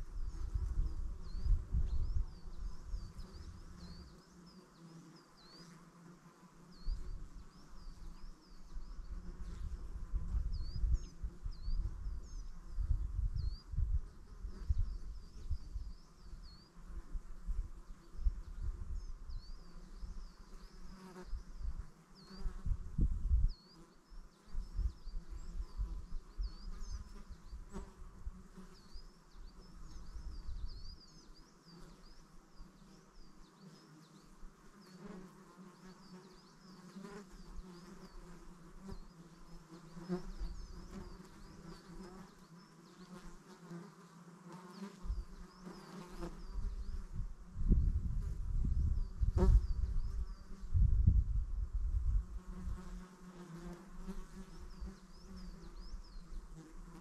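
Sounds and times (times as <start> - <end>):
wind rumble on microphone: 0.0 - 4.1, 8.7 - 20.3, 21.2 - 23.6, 24.5 - 28.4, 29.8 - 31.0, 45.0 - 45.4, 46.3 - 53.1
insect buzzing: 0.0 - 57.0.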